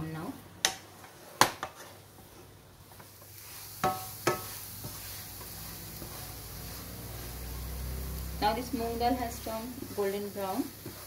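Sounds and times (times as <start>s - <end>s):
wooden spatula stirring in pan: 0.2s - 11.0s.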